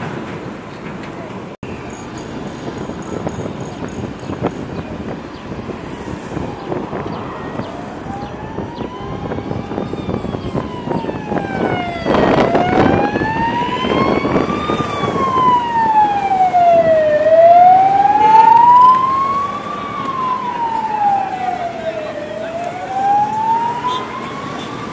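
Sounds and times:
moving traffic noise: 0:00.0 - 0:24.9
road noise burst: 0:00.0 - 0:24.9
vehicle siren wailing: 0:05.6 - 0:24.9.

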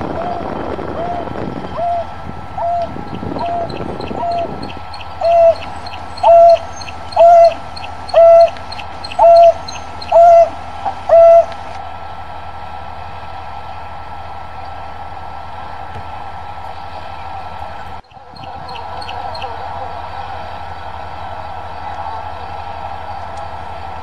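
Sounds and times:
steady low hum: 0:00.0 - 0:24.0
wild dog hoo contact calls: 0:02.6 - 0:11.8.

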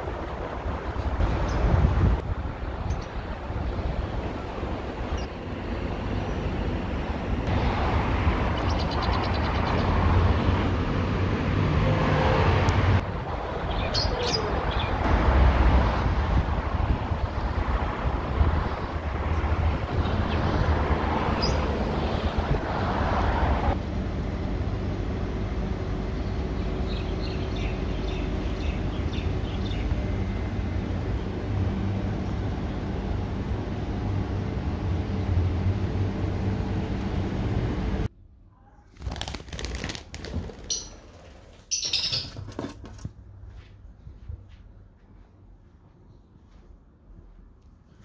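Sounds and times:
distant traffic: 0:00.0 - 0:38.9, 0:39.7 - 0:48.0
wind: 0:00.0 - 0:48.0.

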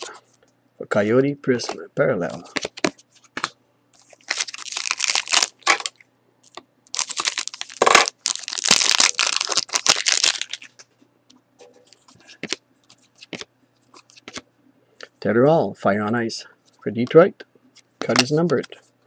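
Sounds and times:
cards rustling and ticking: 0:01.6 - 0:10.9, 0:11.9 - 0:14.4
foil pack tearing and crinkling: 0:04.0 - 0:05.9, 0:06.9 - 0:10.7.

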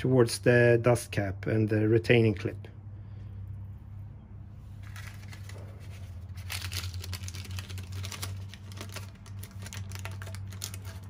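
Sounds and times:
plastic sheet crinkling: 0:04.7 - 0:11.0.

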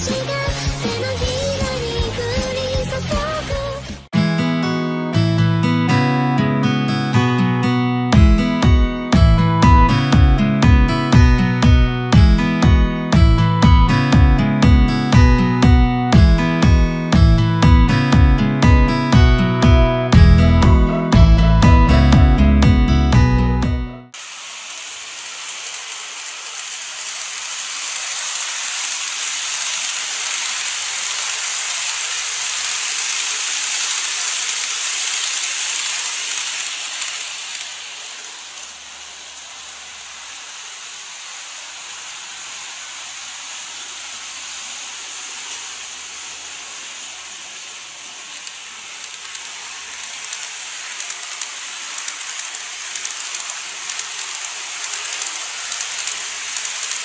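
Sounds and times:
model train wheels and motor rattling: 0:00.0 - 0:03.6, 0:24.2 - 0:57.0.

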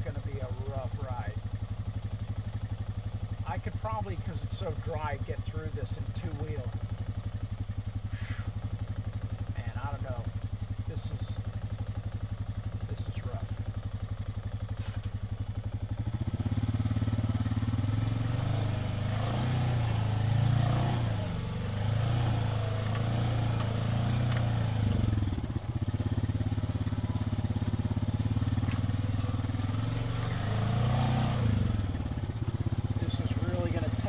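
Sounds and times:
utility vehicle engine running: 0:00.0 - 0:34.0.

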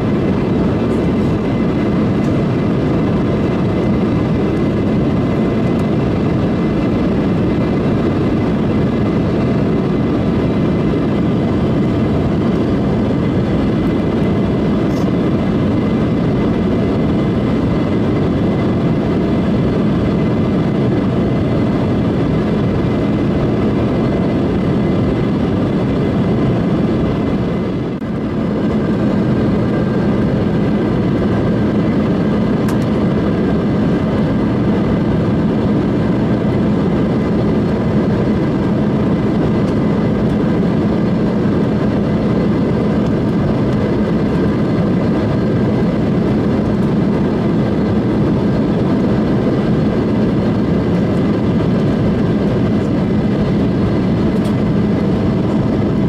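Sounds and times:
airliner cabin airflow rush: 0:00.0 - 0:56.0
jet engines humming: 0:00.0 - 0:56.0.

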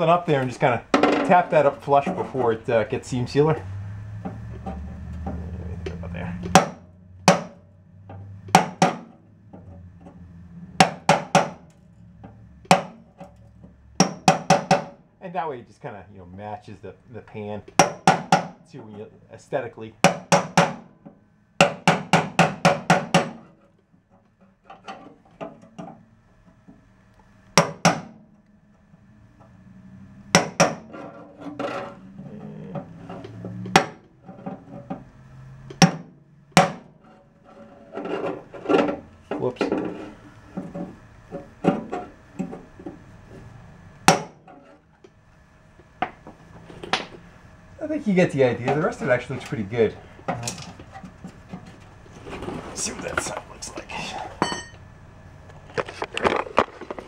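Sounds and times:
metal scraping: 0:00.0 - 0:06.6, 0:30.8 - 0:35.1, 0:36.9 - 0:42.2, 0:48.0 - 0:54.8
hammer striking metal bar: 0:06.4 - 0:07.6, 0:08.5 - 0:09.2, 0:10.8 - 0:11.6, 0:12.7 - 0:13.0, 0:14.0 - 0:15.0, 0:17.8 - 0:18.6, 0:20.0 - 0:20.9, 0:21.6 - 0:23.4, 0:30.3 - 0:30.9, 0:35.8 - 0:36.9, 0:44.1 - 0:44.4
hammer striking steel bar: 0:06.4 - 0:07.6, 0:10.8 - 0:11.6, 0:14.0 - 0:15.0, 0:30.3 - 0:30.9, 0:44.1 - 0:44.4.

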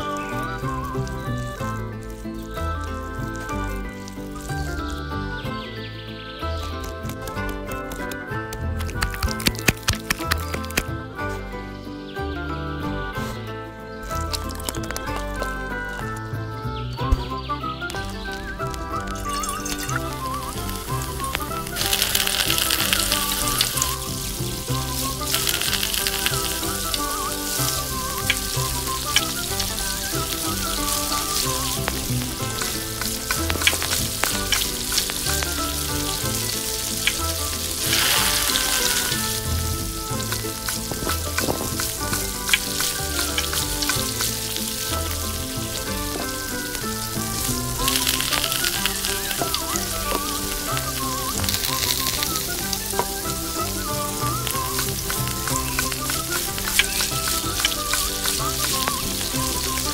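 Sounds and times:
oil sizzling in a pan: 0:19.2 - 0:59.9.

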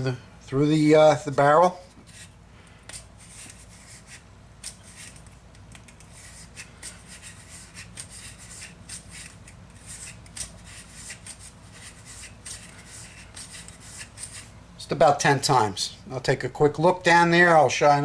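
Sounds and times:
brush scrubbing pistol barrel: 0:02.0 - 0:14.6.

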